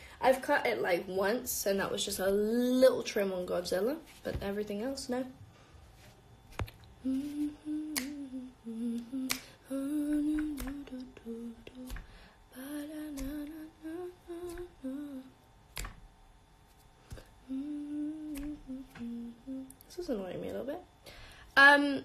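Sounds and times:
woman humming a tune: 0:07.0 - 0:15.4, 0:17.4 - 0:20.6.

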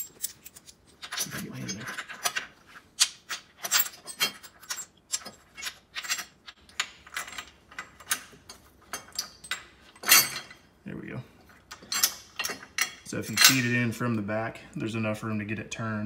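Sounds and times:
metal clicks and scrapes: 0:00.0 - 0:10.6.

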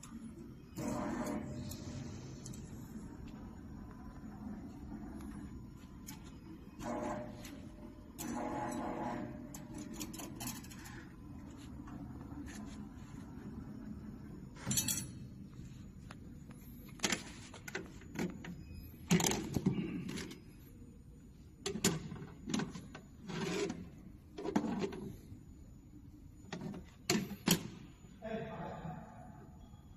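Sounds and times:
low machine hum: 0:00.0 - 0:16.9.

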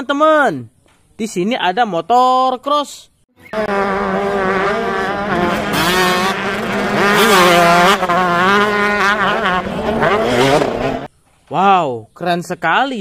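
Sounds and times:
dirt bike engines revving: 0:03.4 - 0:11.1.

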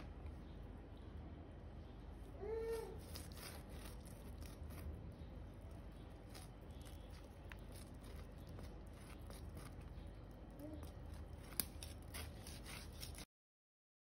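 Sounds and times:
blade cutting fish scales: 0:02.9 - 0:05.0, 0:05.6 - 0:10.0, 0:10.8 - 0:13.3.

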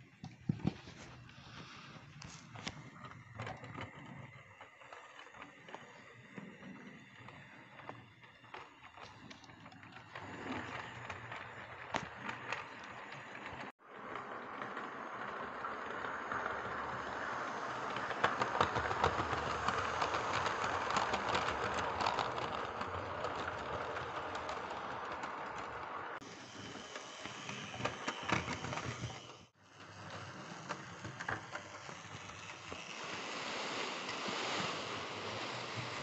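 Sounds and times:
model train motor running: 0:14.2 - 0:33.9.

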